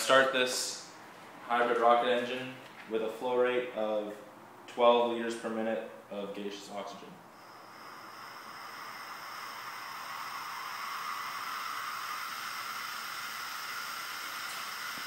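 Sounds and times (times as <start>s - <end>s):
oxygen hissing through rocket nozzle: 7.4s - 15.0s.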